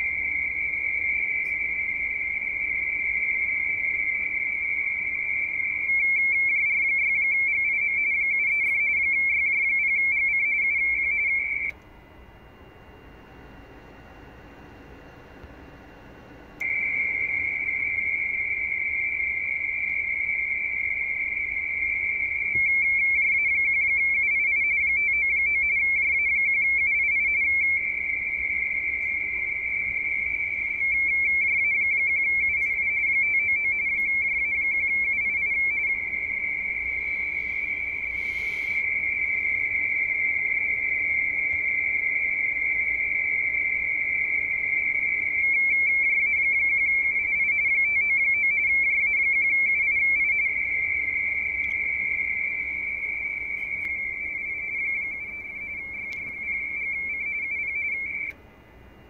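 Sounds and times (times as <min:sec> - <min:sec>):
warbling two-tone data signal: 0:00.0 - 0:11.8, 0:16.6 - 0:58.4.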